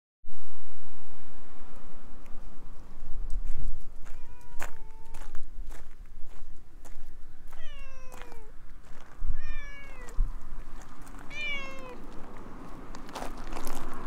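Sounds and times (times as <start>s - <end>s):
cat meowing: 4.0s - 5.2s, 7.5s - 8.5s, 9.4s - 10.2s, 11.3s - 12.0s.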